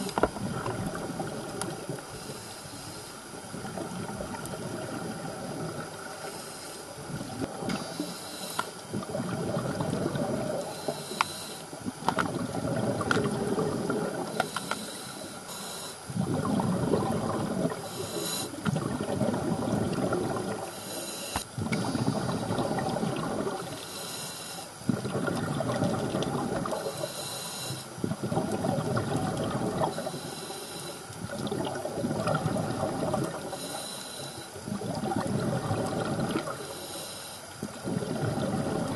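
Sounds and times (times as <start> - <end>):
exhaled bubbles gurgling underwater: 0.0 - 38.9
regulator inhalation hiss: 2.1 - 3.4, 6.0 - 7.0, 7.7 - 8.8, 10.4 - 11.8, 14.2 - 16.2, 17.8 - 18.6, 20.6 - 22.7, 23.7 - 24.8, 26.7 - 28.0, 29.9 - 31.1, 33.4 - 34.7, 36.5 - 37.5.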